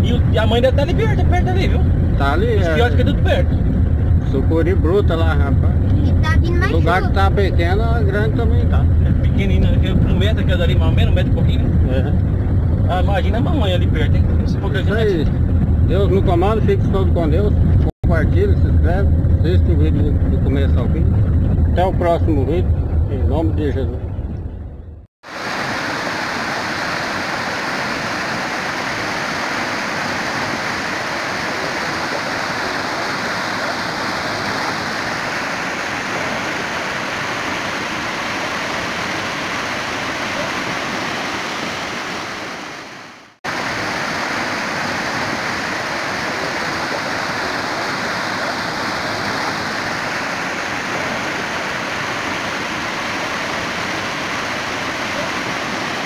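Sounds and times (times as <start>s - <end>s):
river rushing over rapids: 25.2s - 56.0s.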